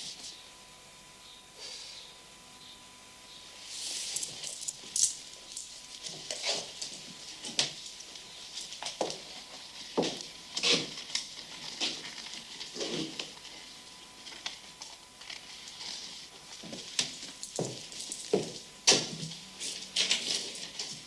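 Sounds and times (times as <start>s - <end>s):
hissing rustle: 3.6s - 8.7s
objects rustling and scraping: 3.6s - 21.0s.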